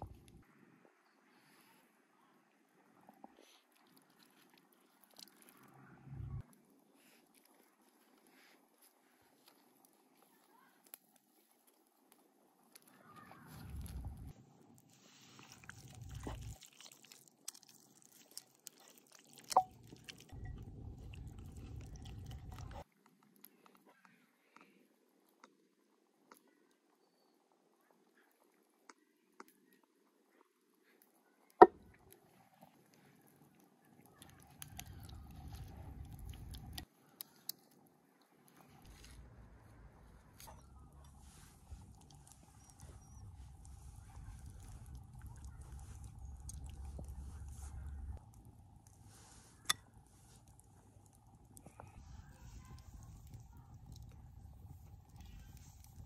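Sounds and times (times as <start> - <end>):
faint low rumble: 0.0 - 10.5, 13.0 - 17.6, 19.4 - 24.5, 31.2 - 56.0
spices crackling: 3.3 - 25.7, 28.9 - 56.0
wet squishing of hands on meat: 12.8 - 22.8, 32.7 - 37.8, 38.4 - 56.0.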